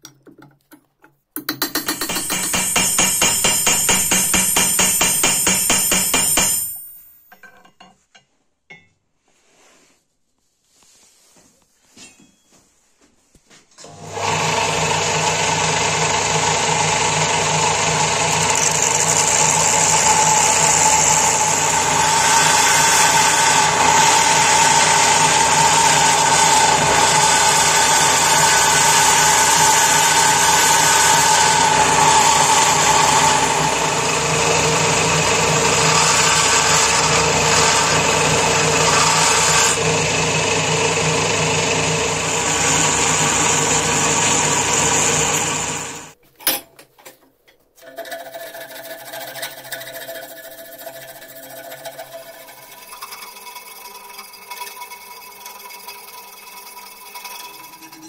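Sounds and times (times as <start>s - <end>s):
belt sander motor hum: 13.8s - 46.2s.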